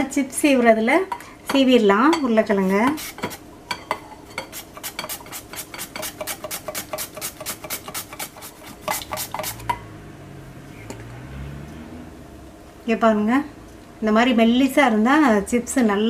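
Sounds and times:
potato scraping over slicer: 2.6 - 3.4, 4.5 - 9.7.

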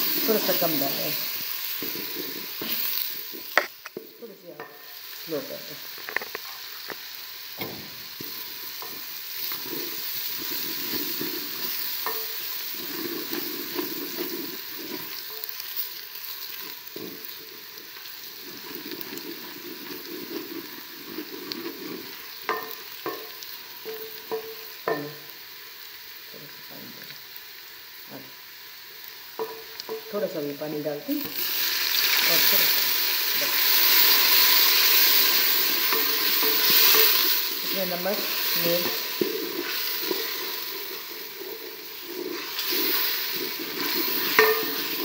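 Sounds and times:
onions sizzling in hot oil: 0.0 - 45.0
spoon scraping and knocking pot: 8.2 - 15.6, 18.6 - 25.2, 35.0 - 37.4, 38.7 - 45.0.

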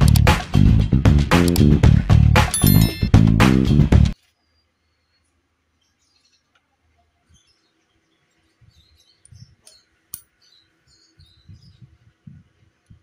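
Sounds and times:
sharp click: 0.0 - 0.4, 1.3 - 1.7.

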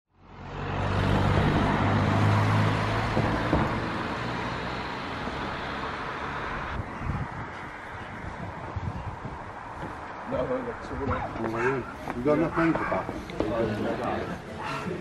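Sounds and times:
vehicle engine hum: 0.2 - 10.7
tyre and road noise: 0.2 - 15.0.

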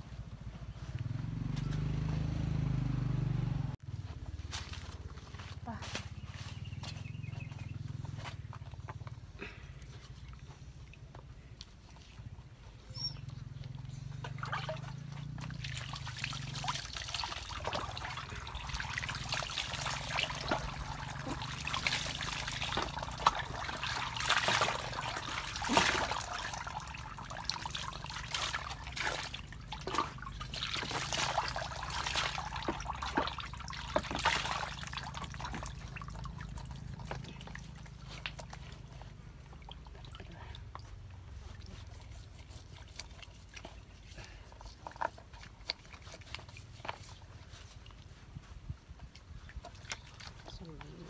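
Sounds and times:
water pouring and splashing: 14.2 - 48.2, 49.0 - 51.0.

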